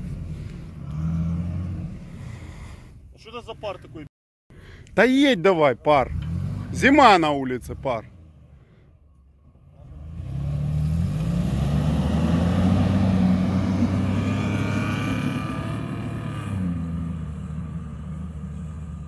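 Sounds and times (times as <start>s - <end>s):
car engine revving under load: 0.0s - 2.6s, 6.0s - 7.0s, 9.6s - 19.0s.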